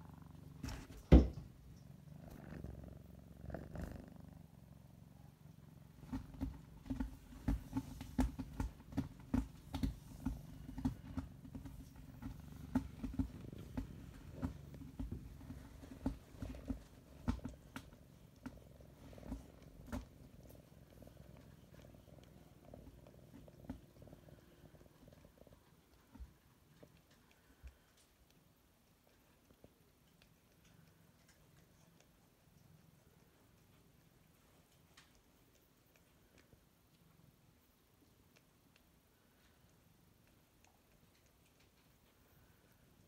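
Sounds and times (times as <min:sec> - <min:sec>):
cat purring: 0:00.0 - 0:43.0.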